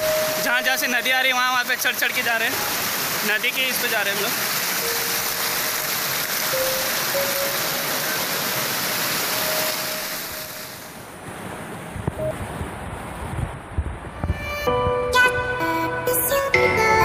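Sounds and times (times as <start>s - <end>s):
hill stream rushing water: 0.0s - 12.8s.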